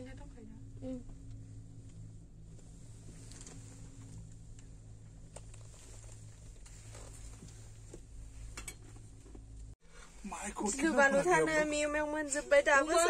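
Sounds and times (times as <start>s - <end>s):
gondola hum: 0.0s - 13.0s
faint clicks and creaks: 1.0s - 9.8s.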